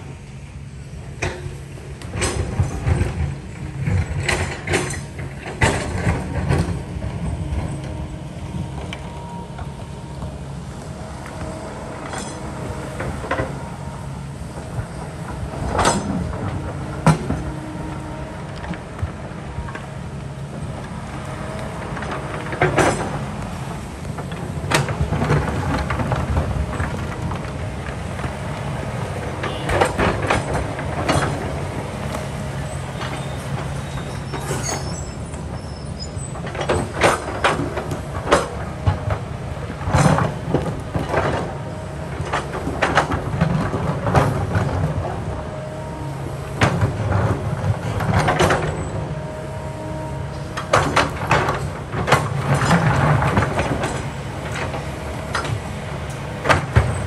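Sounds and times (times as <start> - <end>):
excavator diesel engine running: 0.0 - 57.0.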